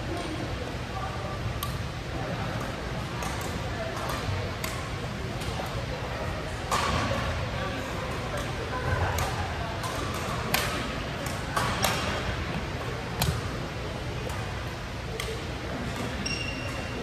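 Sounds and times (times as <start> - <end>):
rackets striking shuttlecock: 9.1 - 13.5, 15.1 - 16.9
shoe squeak: 16.2 - 17.0.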